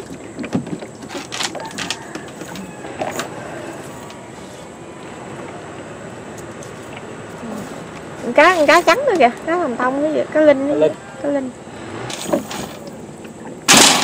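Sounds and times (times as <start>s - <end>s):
knocks and rustles of net: 0.0s - 3.4s, 12.1s - 13.0s.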